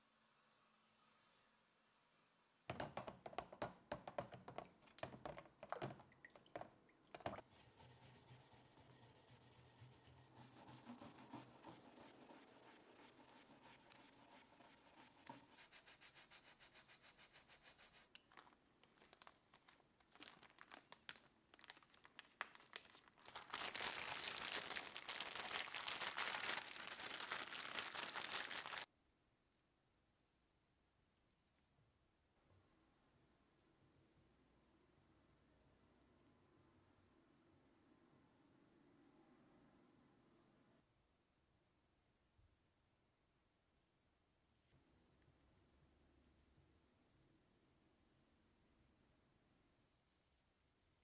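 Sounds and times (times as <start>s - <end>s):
scratchy rubbing: 7.4s - 18.3s
plastic bag crinkling: 18.2s - 28.9s.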